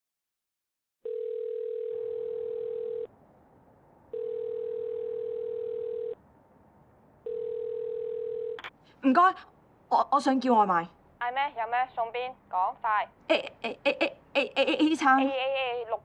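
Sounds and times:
telephone ringback tone: 1.0s - 3.1s, 4.1s - 6.2s, 7.3s - 8.6s.

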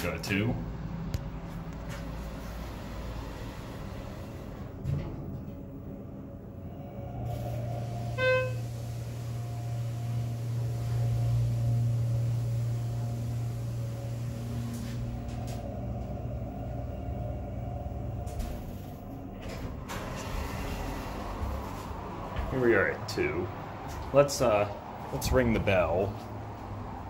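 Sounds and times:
elevator pump motor hum: 0.0s - 27.0s
elevator doors sliding open: 1.8s - 27.0s
short electronic beep: 8.2s - 8.6s.

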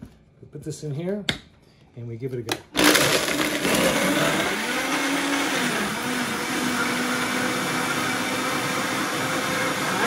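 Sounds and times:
blender crushing ice: 2.7s - 10.0s.

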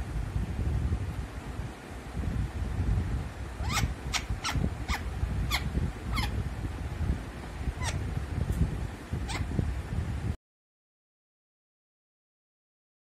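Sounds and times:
steady low rumble: 0.0s - 10.4s
parrot calling: 3.6s - 6.4s, 7.4s - 8.0s, 9.2s - 9.5s.

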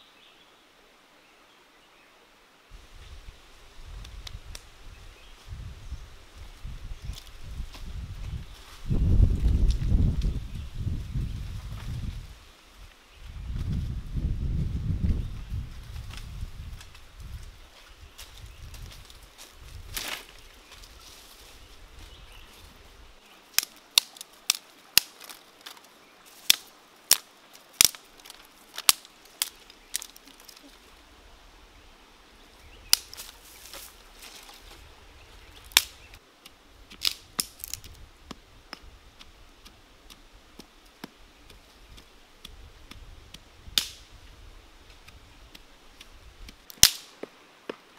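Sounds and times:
dry sticks snapping: 23.5s - 30.7s, 32.8s - 34.6s, 35.6s - 44.2s, 44.9s - 47.8s.

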